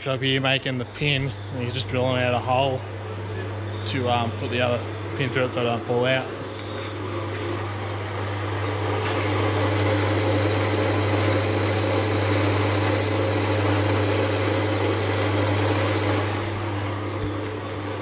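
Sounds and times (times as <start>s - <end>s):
drill press motor hum: 1.1s - 18.0s
drill bit grinding through steel: 5.5s - 18.0s.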